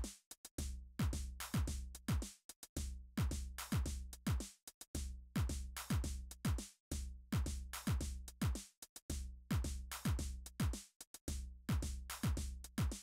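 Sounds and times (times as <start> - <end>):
electronic music with drum beat: 11.7 - 13.0.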